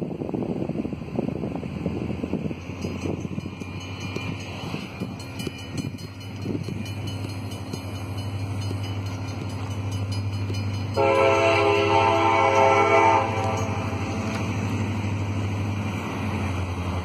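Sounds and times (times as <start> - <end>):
locomotive rumble: 0.0 - 17.0
locomotive air horn blast: 11.0 - 14.0.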